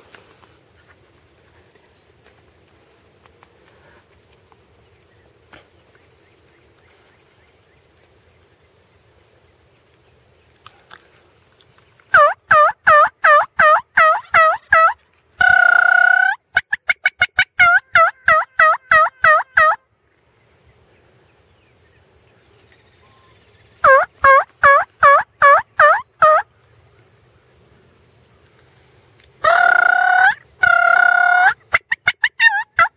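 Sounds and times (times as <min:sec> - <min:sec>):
turkey call yelping: 0:12.1 - 0:19.8, 0:23.8 - 0:26.4, 0:29.4 - 0:32.9.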